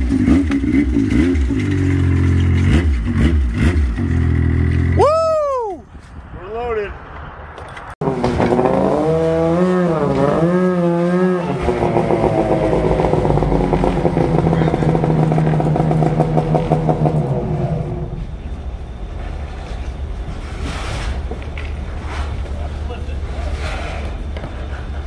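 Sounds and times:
snowmobile engine revving: 0.0 - 5.1, 8.0 - 18.2.

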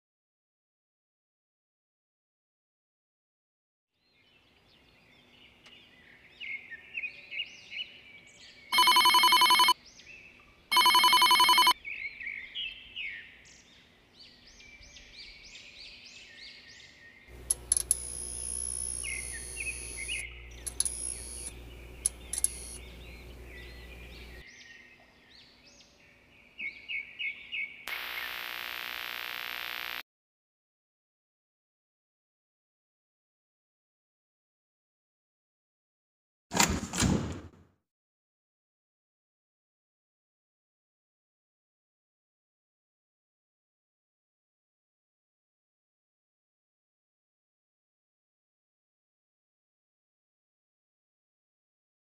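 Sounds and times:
electronic ringing tones: 8.8 - 9.8, 10.7 - 11.8, 17.5 - 24.4
birds chirping: 11.8 - 24.8
harsh hum and static: 17.3 - 24.4, 27.9 - 30.0
loud static burst: 27.9 - 30.0.

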